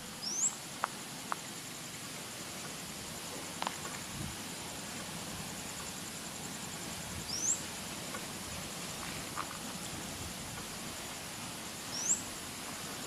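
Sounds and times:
faint steady hiss: 0:00.0 - 0:13.0
rising bird chirp: 0:00.2 - 0:00.6, 0:07.2 - 0:07.7.

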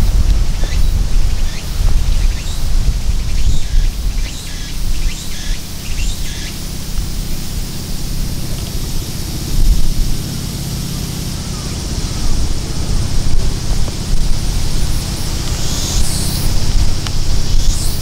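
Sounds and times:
faint high hiss: 0:00.0 - 0:18.0
small birds chirping: 0:00.0 - 0:18.0
loud low rumble: 0:05.7 - 0:18.0.

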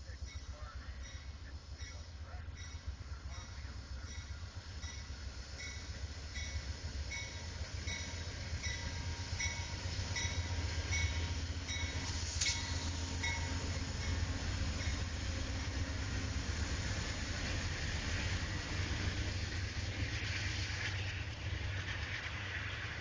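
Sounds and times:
train bell ringing: 0:00.0 - 0:16.2
diesel locomotive rumble: 0:00.0 - 0:23.0
rush of passing train cars: 0:00.0 - 0:23.0.

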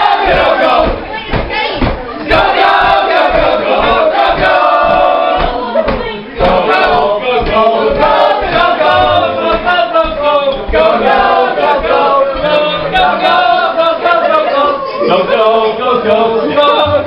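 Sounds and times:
low thuds: 0:00.0 - 0:13.6
choir singing: 0:00.0 - 0:17.0.

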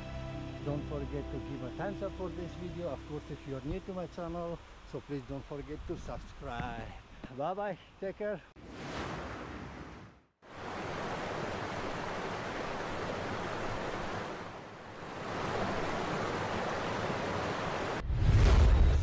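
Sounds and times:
bass-heavy music: 0:00.0 - 0:03.1.

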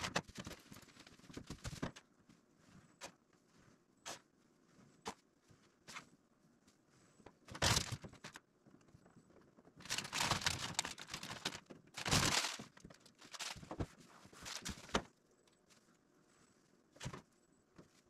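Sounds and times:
masking material crinkling: 0:09.7 - 0:15.1.

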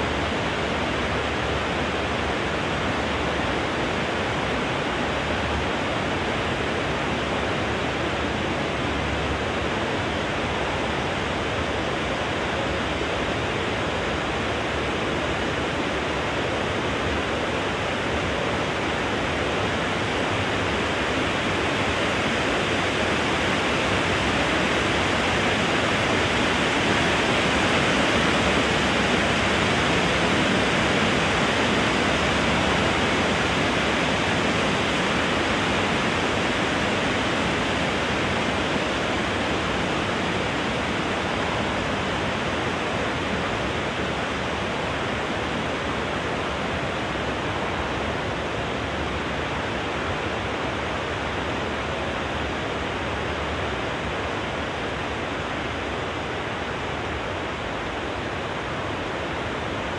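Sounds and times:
wind rustling through trees: 0:00.0 - 0:59.9.

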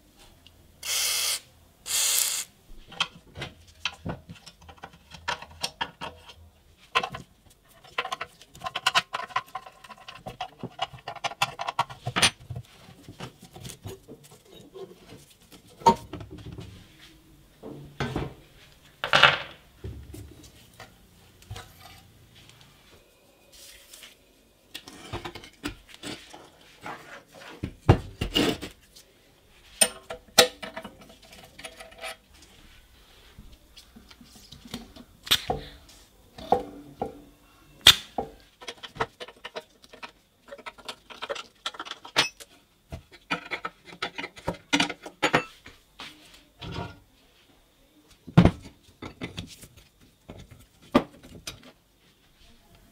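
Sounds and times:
metal parts set on wooden bench: 0:19.0 - 0:22.6.

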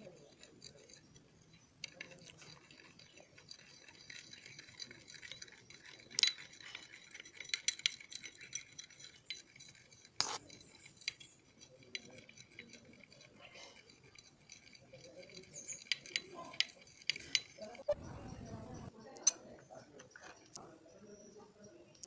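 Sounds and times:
metal spoon scraping glass bowl: 0:00.0 - 0:18.9
spoon clinking against glass: 0:01.9 - 0:18.9.

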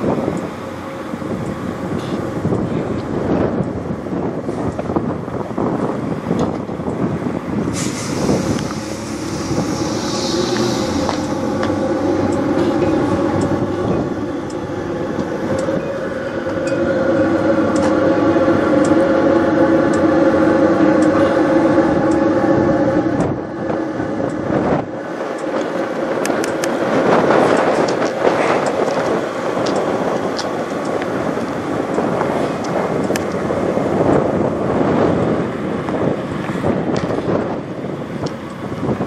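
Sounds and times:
diesel truck engine idling: 0:07.8 - 0:24.7.

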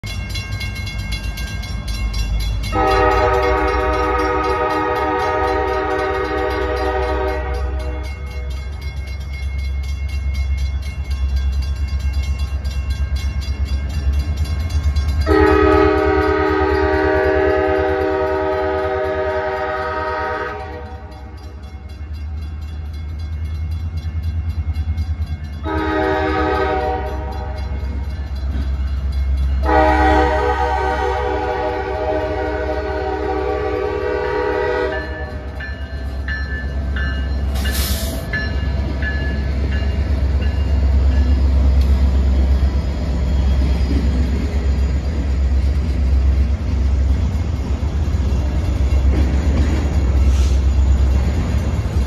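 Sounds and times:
crossing bell ringing rapidly: 0:00.0 - 0:52.0
low locomotive rumble: 0:00.0 - 0:52.0
locomotive air horn blasts: 0:02.7 - 0:08.2, 0:15.2 - 0:21.2, 0:25.6 - 0:27.6, 0:29.6 - 0:35.5.

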